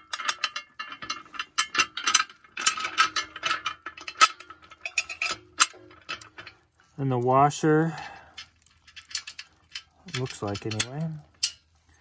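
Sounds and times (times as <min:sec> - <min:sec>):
bolt and nut rattling on metal plate: 0:00.0 - 0:07.3, 0:07.9 - 0:11.8.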